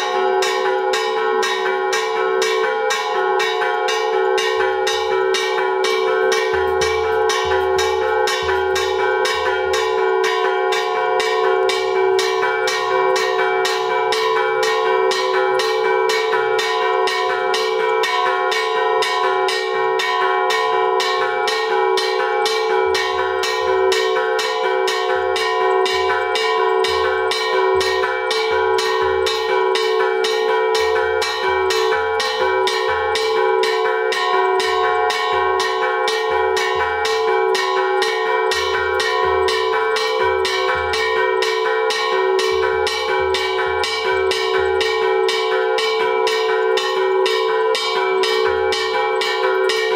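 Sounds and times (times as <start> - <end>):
bell-like ringing: 0.0 - 49.9
metal struck rhythmically: 4.3 - 13.3.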